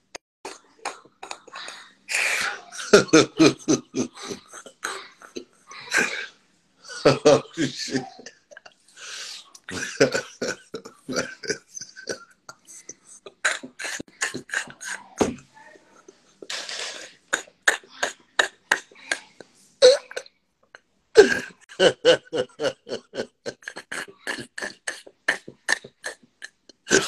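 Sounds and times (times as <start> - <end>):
man laughing breathlessly: 1.3 - 6.3, 6.9 - 15.0, 21.2 - 25.1.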